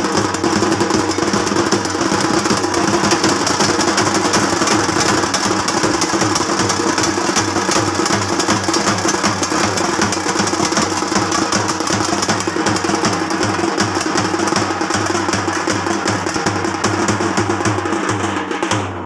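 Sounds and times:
fast rapid drumming: 0.0 - 19.0.

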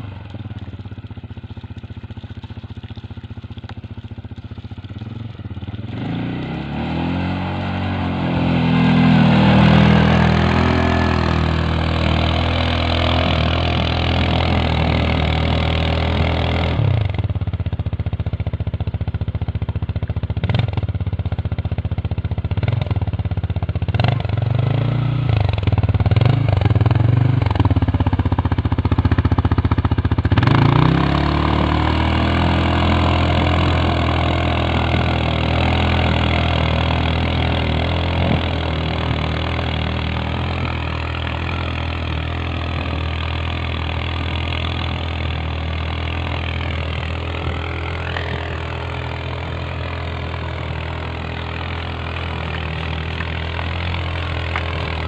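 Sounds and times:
atv engine revving: 0.0 - 55.0.

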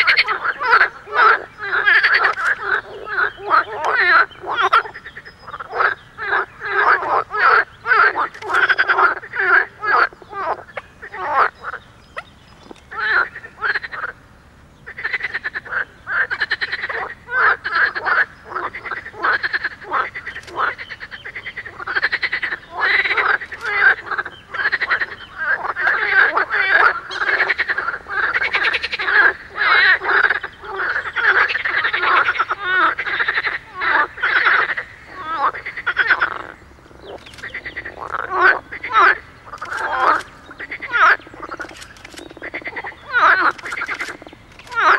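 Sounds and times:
frogs croaking: 0.0 - 44.9.

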